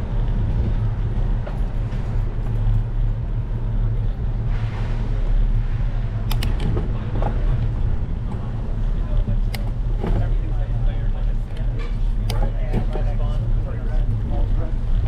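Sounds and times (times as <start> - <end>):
bicycle rolling on pavement: 0.0 - 15.0
sharp clicks: 6.3 - 6.6.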